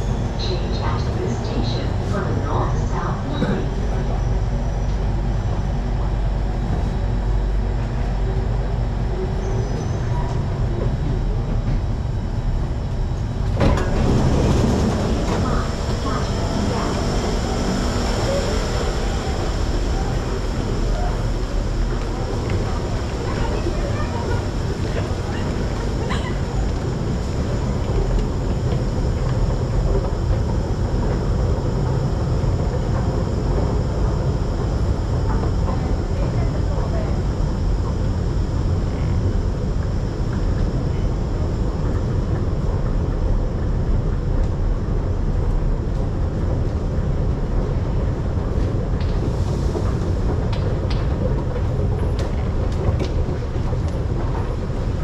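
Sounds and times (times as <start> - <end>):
train rumble and hum: 0.0 - 55.0.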